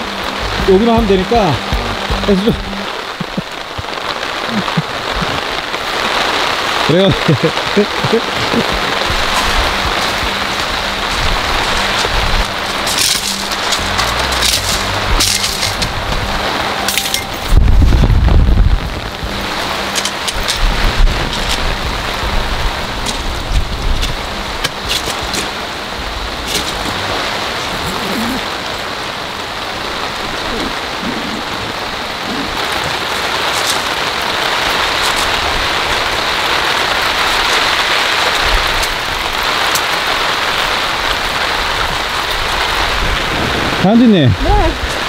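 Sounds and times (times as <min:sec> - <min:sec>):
heavy rain pouring: 0:00.0 - 0:45.0.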